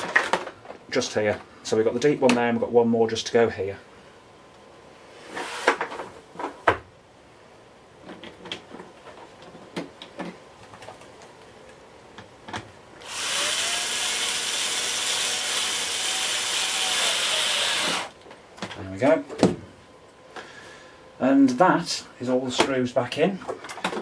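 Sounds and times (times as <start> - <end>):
electric screwdriver running: 13.0 - 18.1.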